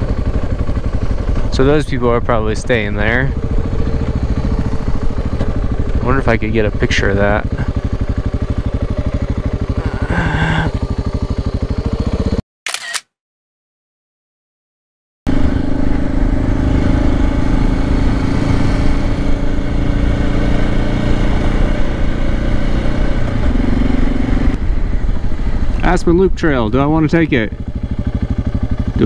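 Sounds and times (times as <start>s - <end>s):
motorcycle engine: 0.0s - 12.4s, 15.3s - 29.0s
camera shutter click: 12.7s - 13.1s.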